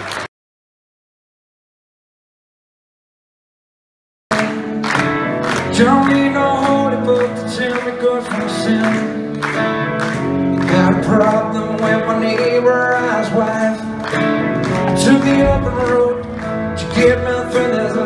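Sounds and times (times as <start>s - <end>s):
electric guitars: 4.3s - 18.0s
person singing lead vocal: 5.4s - 18.0s.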